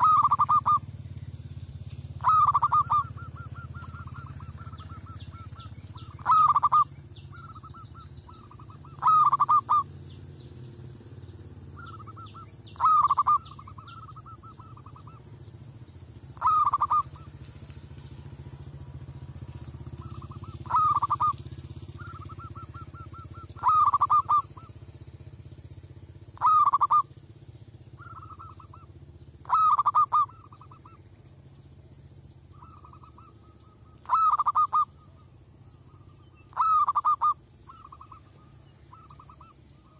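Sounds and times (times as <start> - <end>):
dove cooing: 0.0 - 1.0, 2.1 - 10.0, 11.7 - 15.3, 16.3 - 17.6, 19.8 - 24.9, 26.4 - 27.2, 28.0 - 31.0, 32.5 - 39.9.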